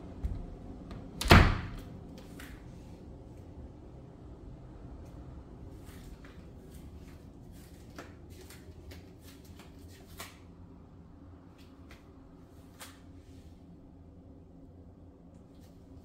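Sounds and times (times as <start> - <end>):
low rumble: 0.0 - 7.8
soft irregular clicks and scuffs: 5.0 - 10.6.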